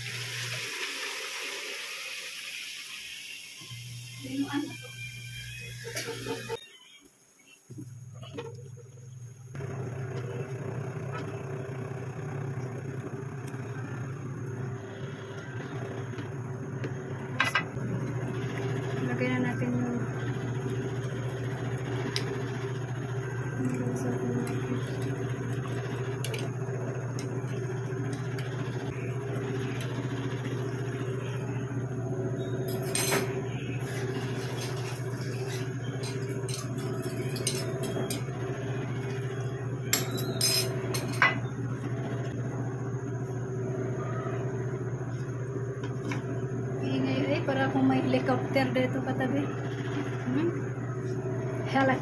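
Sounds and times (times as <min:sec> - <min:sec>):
pan simmering on a stove: 0:00.0 - 0:06.6, 0:33.6 - 0:37.3
steady low hum: 0:07.3 - 0:52.0.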